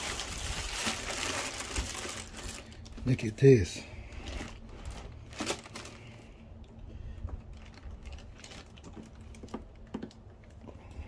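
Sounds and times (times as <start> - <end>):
plastic wrap rustling: 0.0 - 3.3, 4.0 - 6.3, 7.4 - 9.6.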